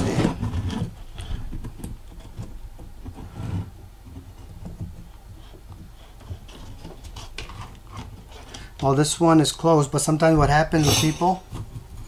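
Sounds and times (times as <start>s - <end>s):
small clicks and rustles: 0.2s - 9.0s.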